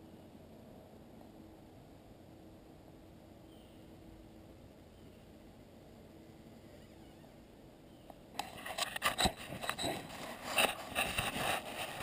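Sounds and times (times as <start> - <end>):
handling noise scraping and clicking: 8.3 - 12.0.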